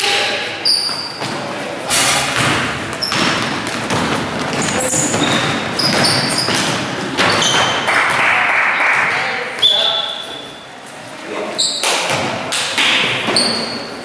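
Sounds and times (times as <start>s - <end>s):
sneaker squeaks: 0.0s - 7.9s, 9.6s - 10.8s, 11.5s - 14.0s
basketball bouncing: 2.3s - 8.3s.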